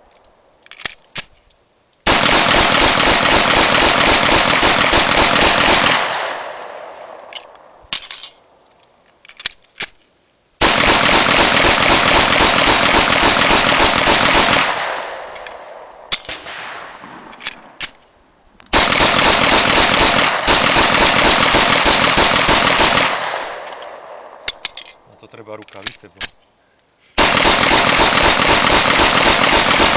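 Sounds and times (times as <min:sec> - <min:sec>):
pistol firing rapidly: 0:02.1 - 0:07.0, 0:10.6 - 0:15.4, 0:18.7 - 0:23.7, 0:27.2 - 0:29.9.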